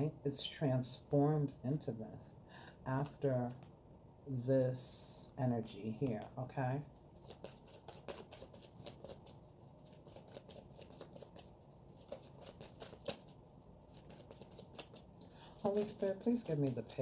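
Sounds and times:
cards being shuffled: 7.2s - 17.0s.

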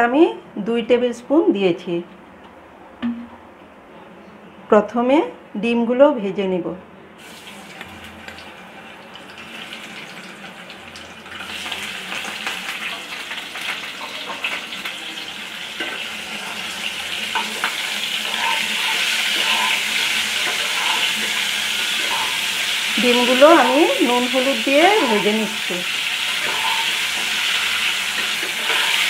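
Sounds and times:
eggs sizzling in hot oil: 7.2s - 29.0s.

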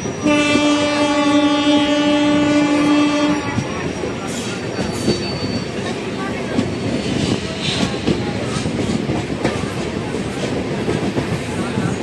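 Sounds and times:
train carriages running on rails: 0.0s - 12.0s
train horn blast: 0.2s - 3.7s.

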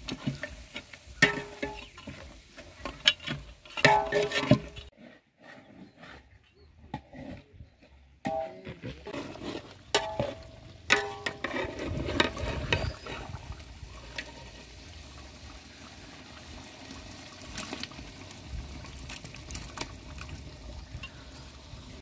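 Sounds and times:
gravy bubbling in a pot: 9.0s - 22.0s.

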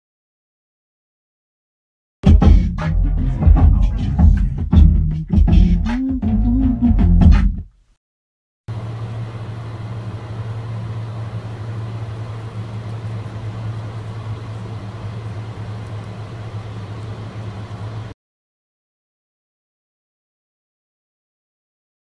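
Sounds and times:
aircraft cabin hum: 8.7s - 18.2s.

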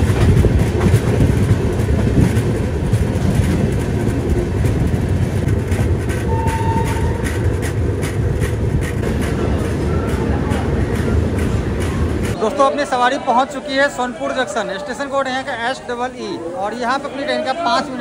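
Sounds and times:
wind noise: 0.0s - 12.4s
wheels clicking over rail joints: 0.0s - 12.6s
train rumble: 0.0s - 16.1s.

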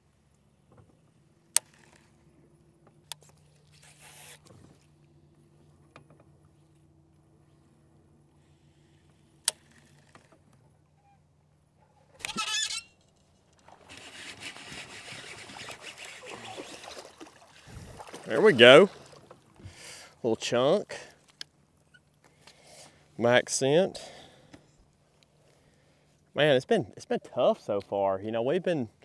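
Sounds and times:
faint steady hum: 0.0s - 12.2s
fish splashing and thrashing: 13.5s - 19.8s.

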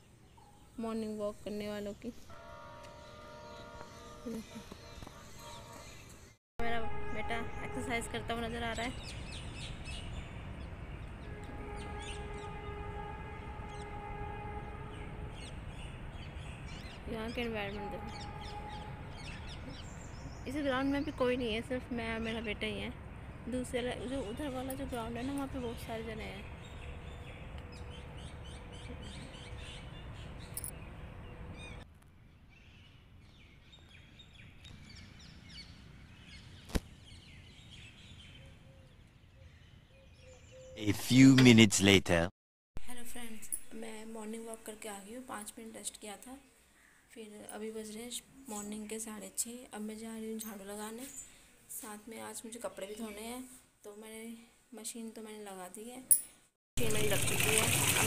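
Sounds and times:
outdoor background noise: 0.0s - 58.0s
horn sounding steady note: 2.3s - 6.0s, 6.6s - 8.8s, 11.2s - 15.5s, 17.7s - 19.2s
small birds chirping: 15.4s - 40.9s, 43.7s - 49.4s.

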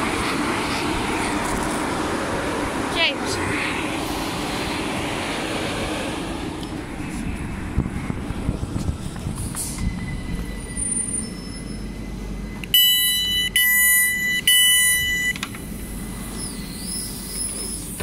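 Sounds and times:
low electric train hum: 0.0s - 18.0s
loud two-tone electronic beeps: 9.8s - 15.4s.

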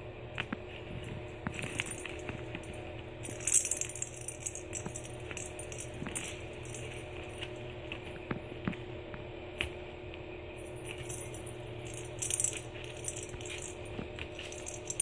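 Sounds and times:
steady low hum: 0.0s - 15.0s
kittens playing against mesh playpen: 0.4s - 15.0s
jingly rattles: 1.5s - 7.6s, 10.6s - 15.0s.

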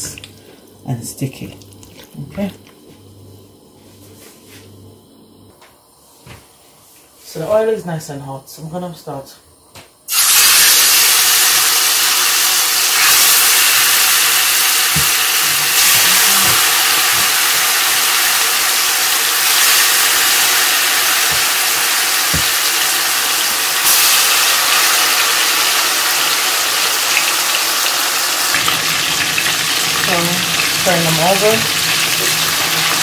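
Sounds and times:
chicken sizzling in hot oil: 10.1s - 33.0s.

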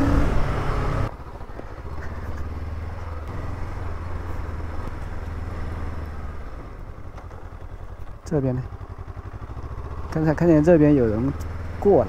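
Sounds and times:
motorcycle engine idling low: 1.1s - 12.0s.

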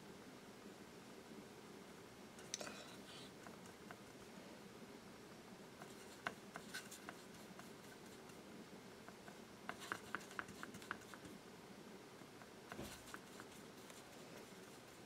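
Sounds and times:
pencil scratching on paper: 5.8s - 8.4s, 9.2s - 11.3s, 12.7s - 15.0s.

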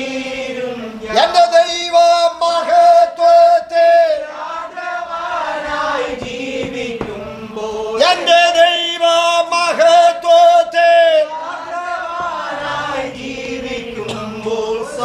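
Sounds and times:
man singing a hymn: 1.0s - 4.3s, 5.8s - 11.3s, 12.6s - 15.0s.

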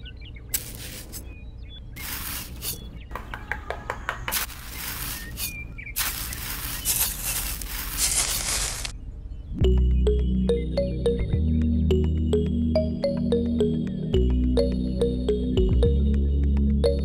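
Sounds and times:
trowel scraping wet mortar: 2.0s - 2.9s, 4.3s - 8.6s.

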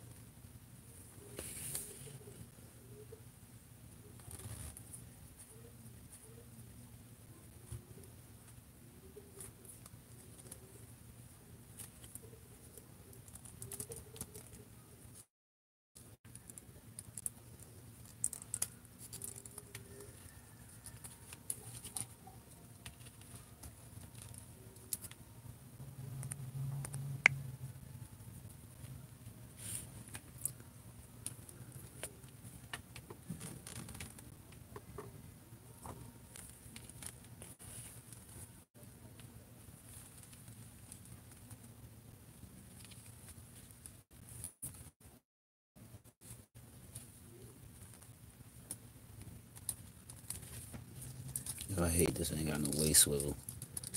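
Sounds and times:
faint steady hum: 0.0s - 15.3s, 16.0s - 45.2s, 45.8s - 53.9s.

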